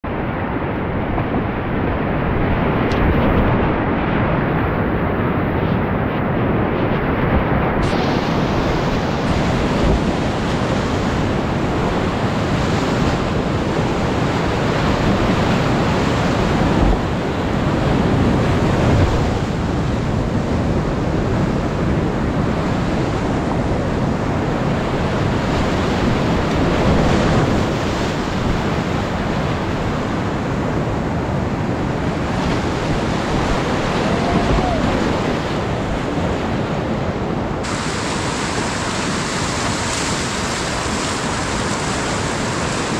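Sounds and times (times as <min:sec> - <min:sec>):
water thumping boat: 0:07.3 - 0:17.2, 0:37.6 - 0:42.9
whitewater rapids rushing: 0:07.8 - 0:20.2, 0:31.8 - 0:42.9.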